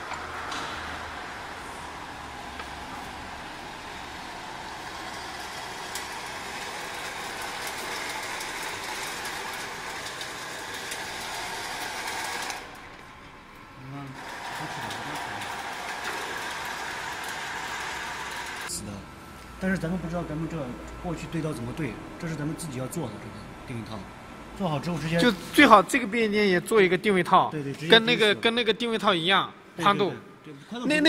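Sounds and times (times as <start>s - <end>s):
metal slitting machine running: 0.0s - 18.7s.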